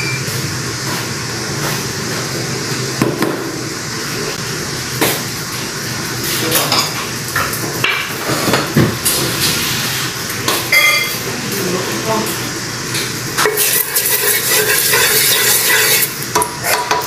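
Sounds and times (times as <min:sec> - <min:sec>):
pots and metal utensils clinking: 0:10.5 - 0:11.3, 0:12.9 - 0:17.0.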